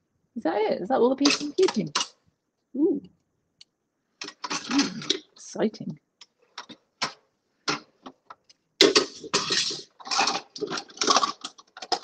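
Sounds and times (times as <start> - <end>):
attachments clicking and clattering: 6.2 - 12.0.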